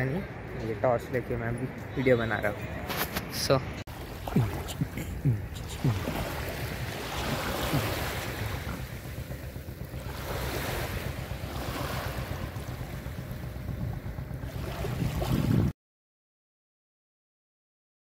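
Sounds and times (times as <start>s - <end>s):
wind rumbling on microphone: 2.6s - 15.7s
small waves washing over sand: 2.8s - 13.4s, 14.5s - 15.7s.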